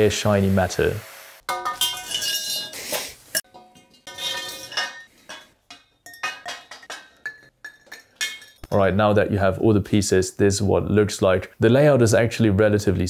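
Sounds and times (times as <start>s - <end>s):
steel tubing knocking together: 3.4s - 8.8s.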